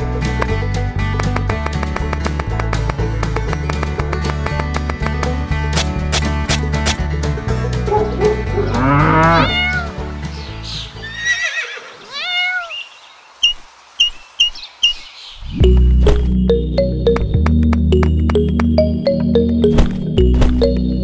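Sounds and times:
background music: 0.0 - 11.7, 15.5 - 21.0
cow mooing: 8.4 - 9.8
cat meowing: 9.4 - 10.0, 11.1 - 12.9.

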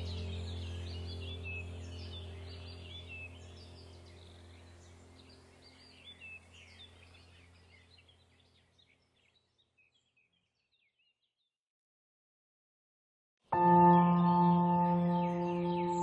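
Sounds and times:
low steady drone: 0.0 - 7.9, 13.6 - 16.0
birds chirping and trilling: 0.0 - 11.4, 13.6 - 16.0.

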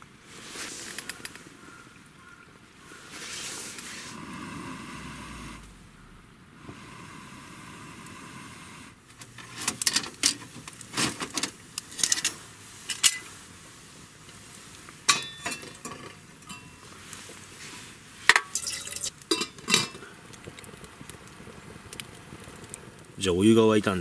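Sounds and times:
metal kettle clinking on grill: 15.1 - 16.8, 18.3 - 20.0.

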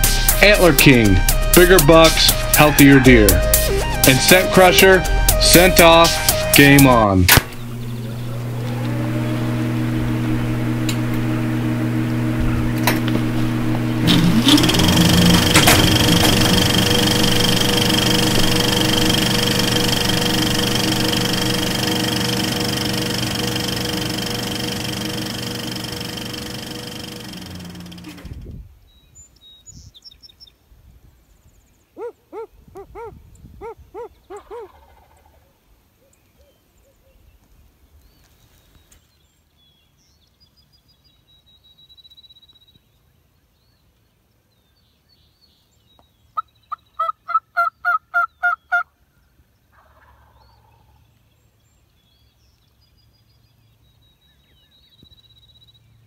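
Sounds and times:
music: 0.0 - 7.6, 14.5 - 26.6
turkey calling: 32.0 - 35.4, 46.4 - 48.9, 49.7 - 51.0.

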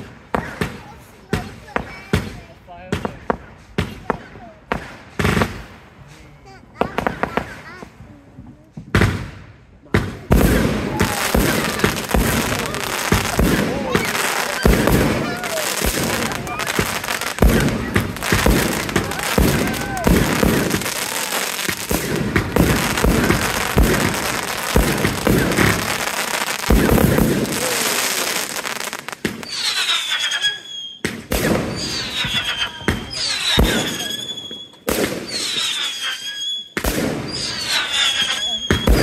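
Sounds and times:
fireworks bangs and crackling: 0.0 - 39.0
firework shots with falling whistle: 10.4 - 39.0.

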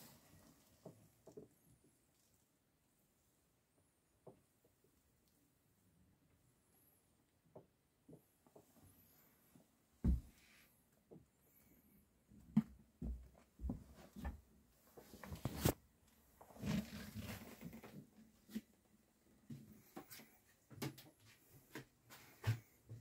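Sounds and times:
rustling: 14.8 - 18.7.

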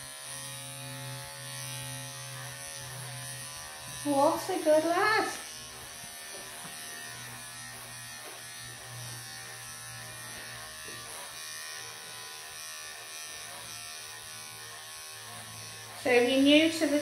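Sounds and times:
electric clippers buzzing: 0.0 - 17.0.

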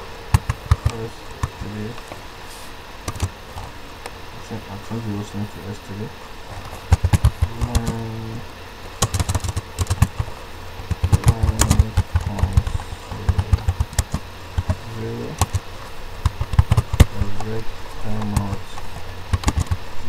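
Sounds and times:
computer keyboard typing: 6.9 - 8.1, 9.0 - 15.6, 16.2 - 19.8.

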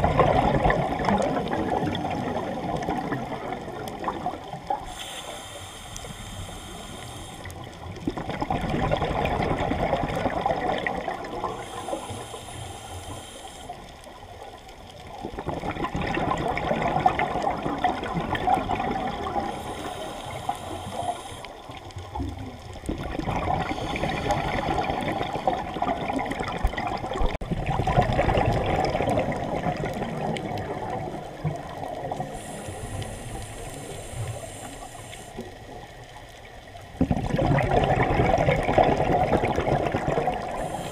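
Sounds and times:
exhaled bubbles underwater: 0.0 - 40.9
regulator hissing: 4.8 - 7.6, 11.5 - 13.8, 19.5 - 21.6.

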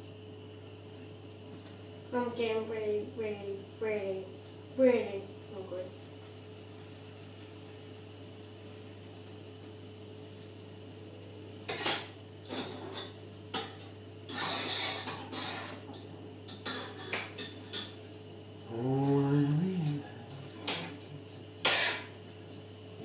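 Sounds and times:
steady low hum: 0.0 - 23.0
pots and pans clanking: 11.7 - 18.0, 21.6 - 22.2.

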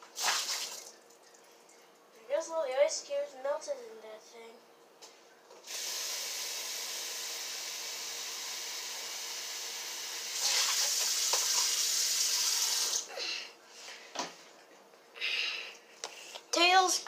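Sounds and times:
water running into a sink: 0.0 - 1.2, 5.7 - 13.0.

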